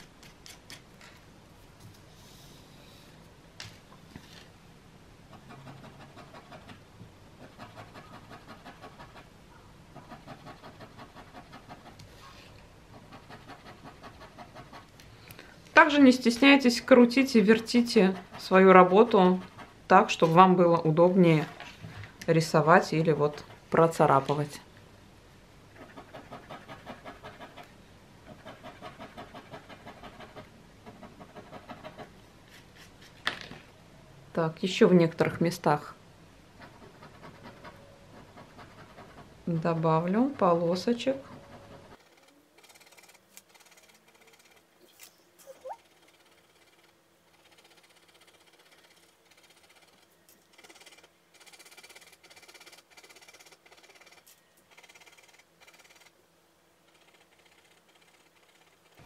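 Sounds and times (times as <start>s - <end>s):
metal tool scratching pastel on paper: 5.3s - 6.8s, 7.4s - 9.3s, 9.9s - 15.0s, 15.8s - 20.5s, 25.7s - 33.2s, 36.6s - 44.6s, 56.9s - 59.0s.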